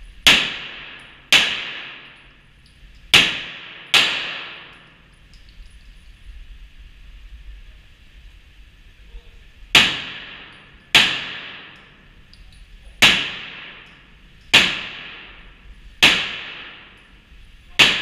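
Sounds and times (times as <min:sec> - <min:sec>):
pistol shots echoing: 0:00.2 - 0:02.2, 0:03.1 - 0:04.9, 0:09.8 - 0:11.9, 0:13.0 - 0:17.0, 0:17.8 - 0:18.0.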